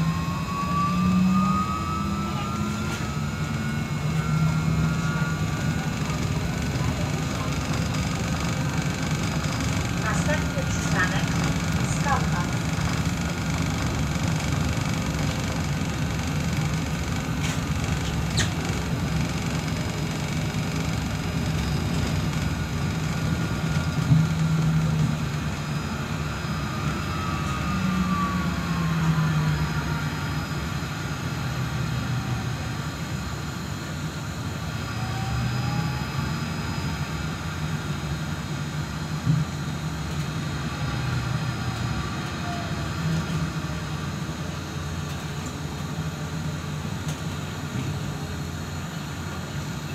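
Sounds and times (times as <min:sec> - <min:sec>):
bus cabin rumble and hum: 0:00.0 - 0:49.9
electric drive whine: 0:00.0 - 0:49.9.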